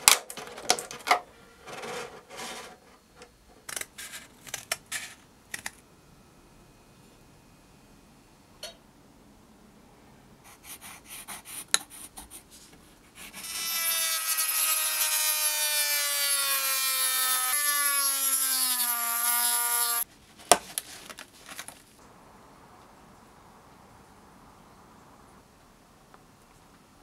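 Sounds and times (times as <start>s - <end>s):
rotary tool cutting plastic: 13.2s - 20.0s
plastic sheet rustling: 20.2s - 22.0s.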